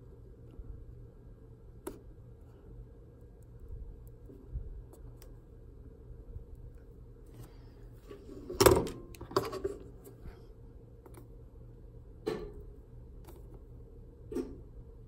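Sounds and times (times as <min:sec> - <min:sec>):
faint low hum: 0:00.0 - 0:15.0.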